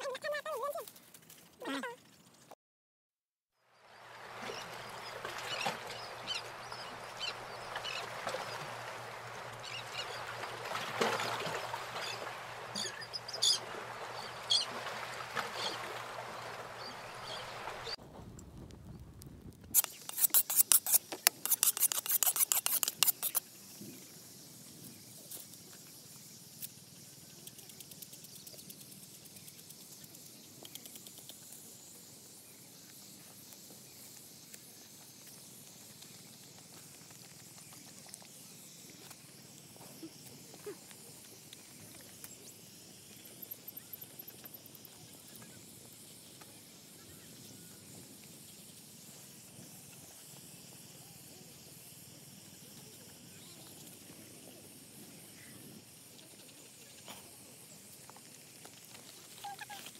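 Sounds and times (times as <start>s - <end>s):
cleaver cutting eggplant: 19.8s - 23.4s.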